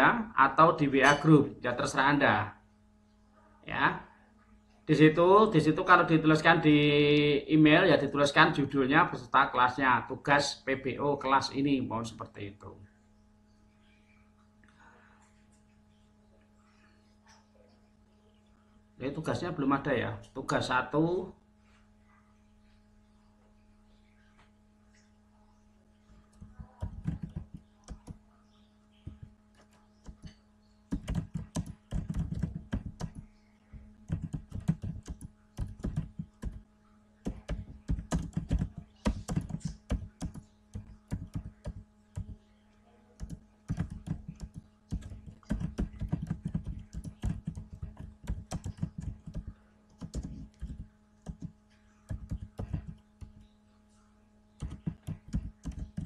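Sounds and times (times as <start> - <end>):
faint low hum: 0.0 - 56.0
typing on a keyboard: 26.3 - 28.2, 29.1 - 33.2, 34.1 - 36.6, 37.3 - 42.4, 43.2 - 51.5, 52.1 - 53.4, 54.6 - 56.0.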